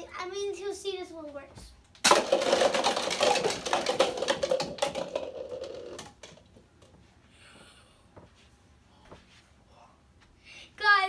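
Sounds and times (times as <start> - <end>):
plastic cups clattering: 2.0 - 6.6.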